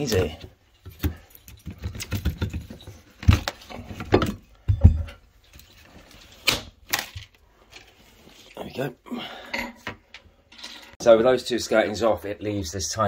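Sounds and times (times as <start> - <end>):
wood cracking and knocking: 0.0 - 5.2.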